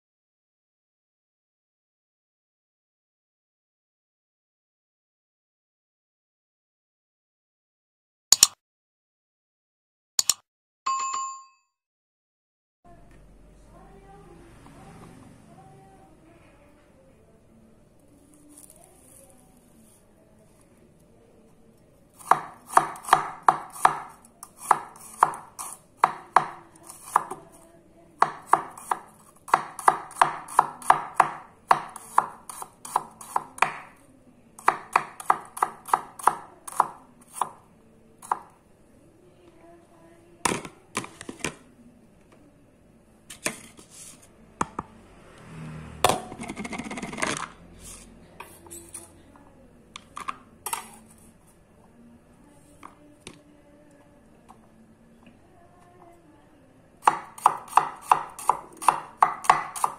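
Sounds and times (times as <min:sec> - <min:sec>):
knife chopping on wooden board: 0:22.2 - 0:27.4, 0:28.2 - 0:33.9, 0:34.6 - 0:37.6, 0:57.0 - 0:59.9.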